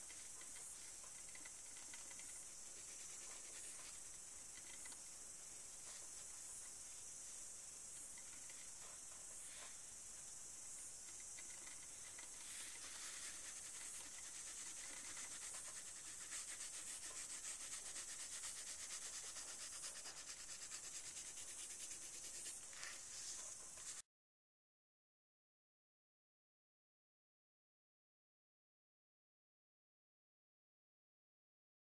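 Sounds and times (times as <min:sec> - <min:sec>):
drawing stick rubbing on paper: 0:00.0 - 0:05.0, 0:11.6 - 0:24.0.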